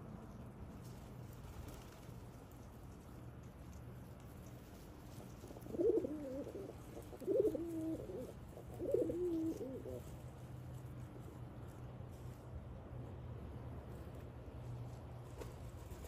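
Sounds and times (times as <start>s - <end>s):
low steady hum: 0.0s - 16.0s
pigeons cooing: 5.2s - 10.1s.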